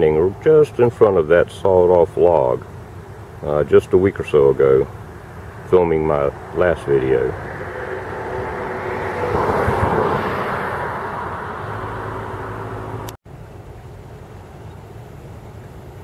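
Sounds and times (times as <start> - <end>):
steady outdoor noise: 0.0 - 16.0
vehicle driving past: 4.5 - 13.2.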